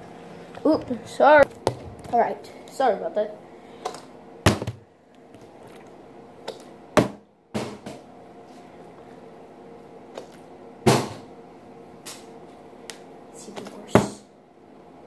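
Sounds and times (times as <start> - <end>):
plastic bottle thudding on table: 4.5 - 4.8.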